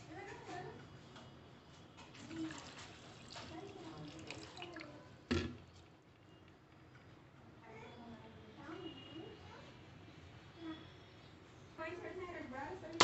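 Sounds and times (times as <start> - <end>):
water pouring and splashing: 2.0 - 5.8.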